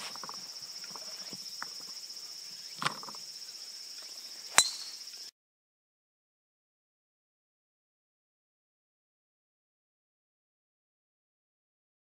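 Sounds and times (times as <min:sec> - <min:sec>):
high insect buzz: 0:00.0 - 0:05.3
golf club striking ball: 0:04.5 - 0:05.0.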